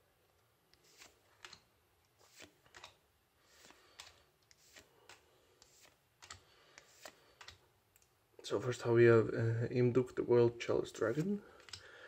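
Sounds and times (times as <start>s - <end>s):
trading cards snapping and swishing: 0.8s - 7.6s.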